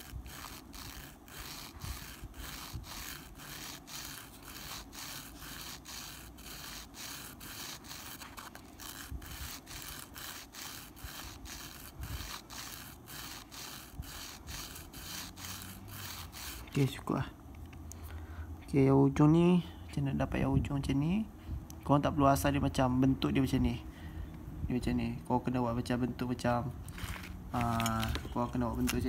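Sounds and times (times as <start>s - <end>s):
metal needle rubbing on sandpaper: 0.0s - 17.0s.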